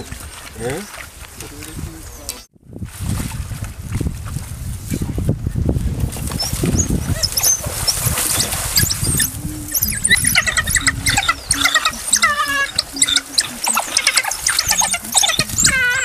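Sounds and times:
wild dogs twittering: 0:06.4 - 0:16.0.

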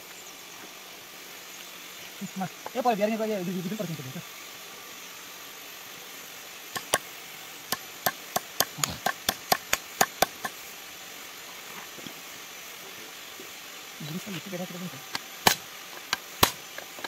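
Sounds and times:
hammer tapping on metal: 0:06.8 - 0:07.0, 0:07.7 - 0:10.6.

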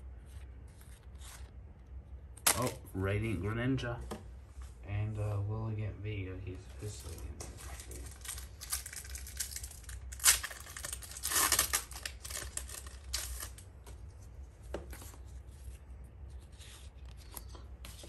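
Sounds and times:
foil wrapper tearing: 0:02.4 - 0:02.8, 0:07.6 - 0:13.6
cards rustling and clicking: 0:07.0 - 0:18.0.

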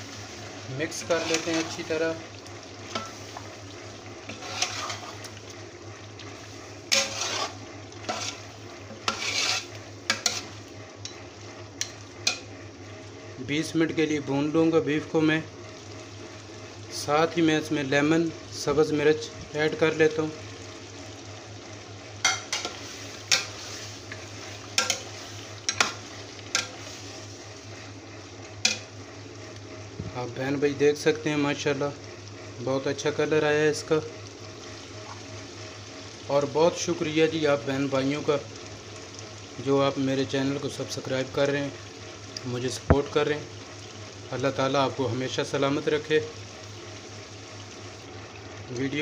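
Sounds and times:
frying sizzle: 0:00.0 - 0:49.0
ladle scraping metal pot: 0:00.9 - 0:01.9, 0:04.3 - 0:05.3, 0:06.9 - 0:10.6.

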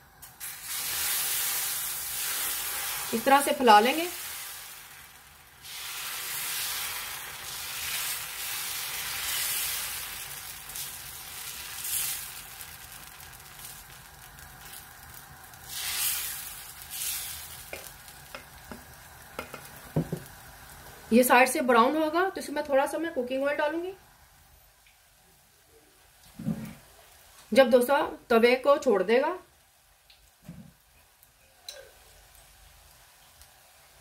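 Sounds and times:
batter sizzling on a pan: 0:00.0 - 0:22.1.

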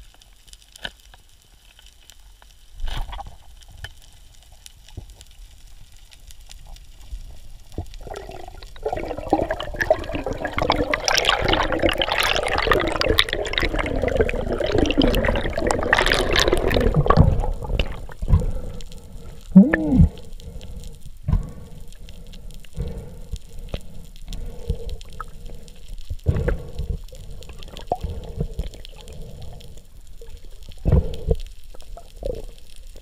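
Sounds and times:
water sloshing and gurgling: 0:07.7 - 0:33.0.

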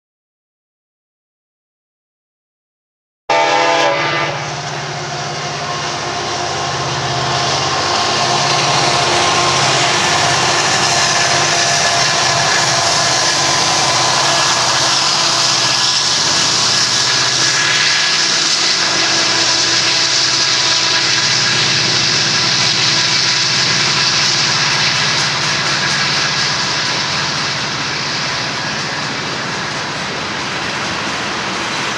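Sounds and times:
diesel locomotives under power: 0:03.3 - 0:31.9
steel wheels rolling on rail: 0:03.3 - 0:31.9.

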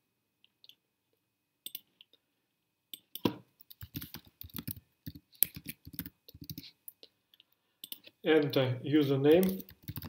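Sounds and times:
mouse clicking: 0:03.0 - 0:07.0, 0:07.8 - 0:08.5, 0:09.4 - 0:10.0
keyboard keystrokes: 0:09.4 - 0:10.0.

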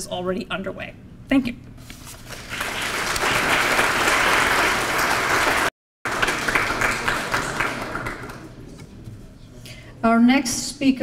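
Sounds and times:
audience applauding: 0:02.4 - 0:08.6.

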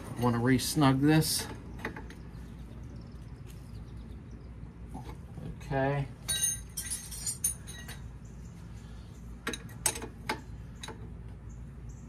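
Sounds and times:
wrench clinking against metal bolts: 0:06.2 - 0:08.0.

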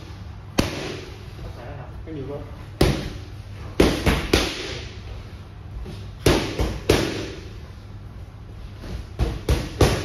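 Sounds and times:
boxing gloves smacking mitts: 0:05.9 - 0:07.5, 0:08.8 - 0:10.0.

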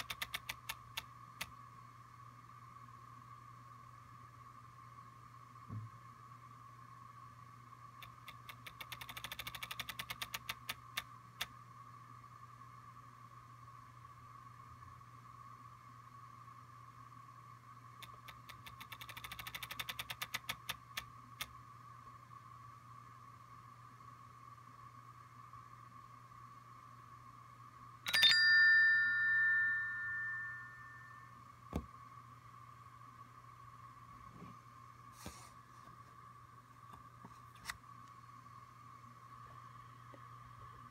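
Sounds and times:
small haptic clicks: 0:00.0 - 0:01.6, 0:08.0 - 0:11.6, 0:18.0 - 0:21.6
faint steady hum: 0:00.0 - 0:40.9
bell-like ding: 0:28.1 - 0:31.4.

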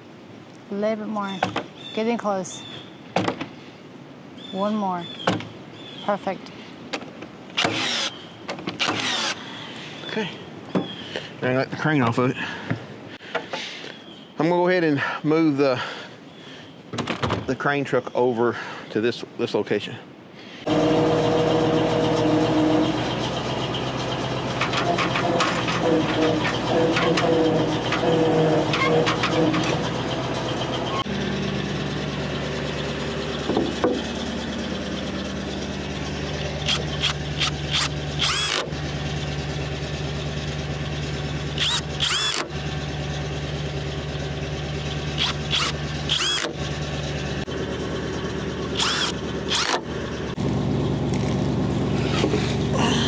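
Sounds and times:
truck engine running: 0:20.6 - 0:53.0
high-pitched squeaks: 0:24.6 - 0:31.1, 0:51.9 - 0:52.6.

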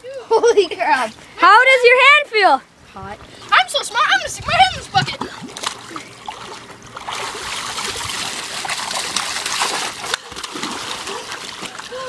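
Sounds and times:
pool water splashing: 0:00.0 - 0:12.0.

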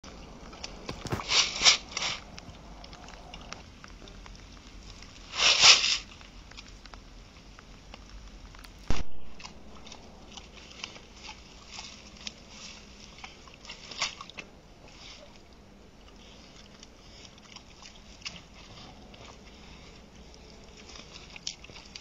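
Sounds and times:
boar crunching maize: 0:00.0 - 0:22.0.

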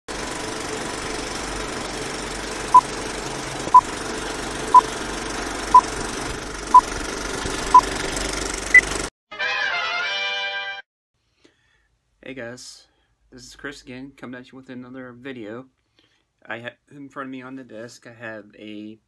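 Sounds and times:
projector rattle and crackle: 0:00.1 - 0:09.0.

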